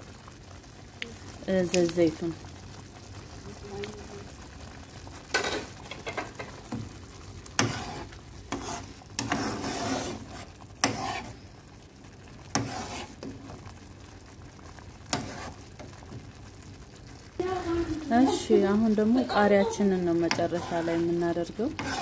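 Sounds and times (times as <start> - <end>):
sauce bubbling: 0.0 - 22.0
metal spoon scraping a pan: 7.5 - 11.4, 12.5 - 13.4, 15.0 - 15.7, 19.2 - 22.0.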